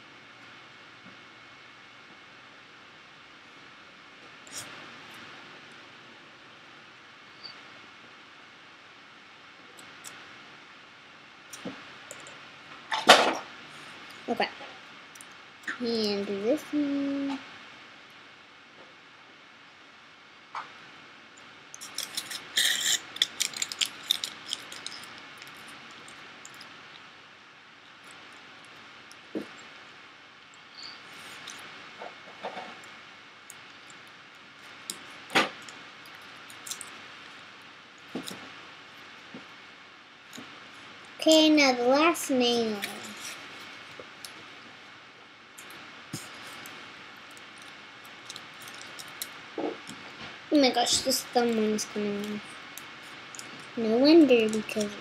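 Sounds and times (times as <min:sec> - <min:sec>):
steady hiss: 0:00.0 - 0:55.0
aluminium foil crinkling: 0:21.8 - 0:27.0, 0:35.6 - 0:37.4, 0:46.2 - 0:49.4, 0:50.8 - 0:55.0.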